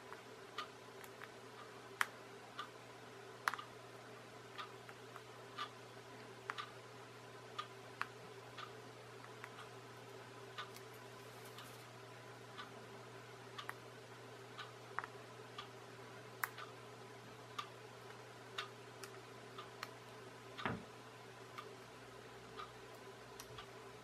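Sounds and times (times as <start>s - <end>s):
steady clock tick: 0.0s - 3.8s, 4.4s - 11.0s, 12.4s - 15.8s, 16.4s - 24.0s
faint low hum: 0.0s - 24.0s.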